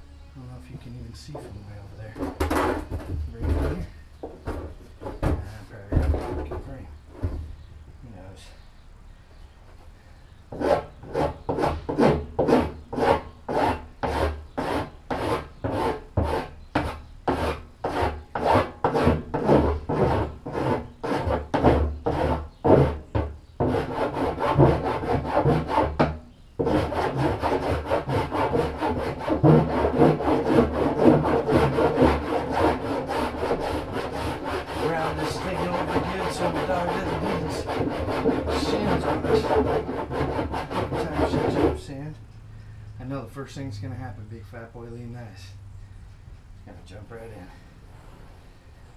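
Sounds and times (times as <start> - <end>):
hand rasp filing plastic: 10.5 - 42.0.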